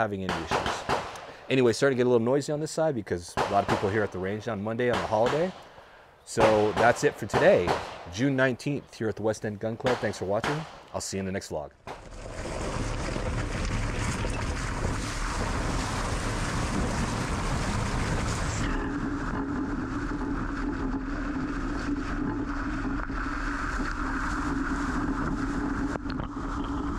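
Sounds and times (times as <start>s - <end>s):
water rushing and splashing: 11.9s - 26.0s
steady low hum: 14.0s - 26.9s.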